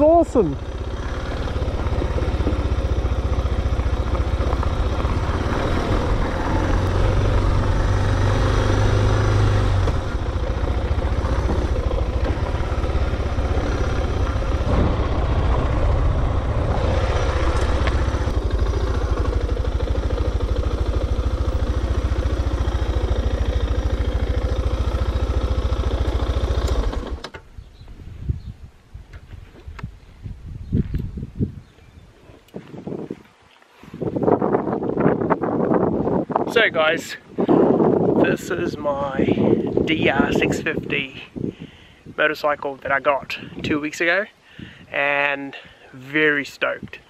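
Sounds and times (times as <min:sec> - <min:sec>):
motorcycle engine running: 0:00.0 - 0:27.8.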